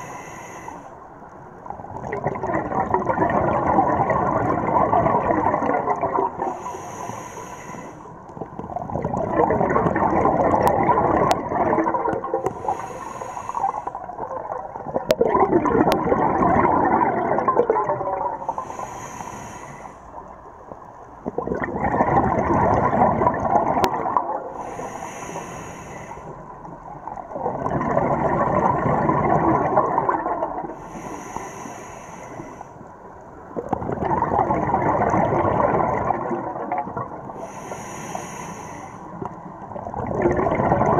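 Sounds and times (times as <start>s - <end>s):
regulator inhalation hiss: 0.0s - 1.0s, 6.4s - 8.2s, 12.4s - 14.0s, 18.5s - 20.2s, 24.6s - 26.5s, 30.8s - 32.7s, 37.4s - 39.2s
exhaust bubbles gurgling: 1.6s - 7.2s, 8.3s - 18.8s, 20.1s - 25.3s, 26.3s - 31.5s, 33.4s - 40.9s.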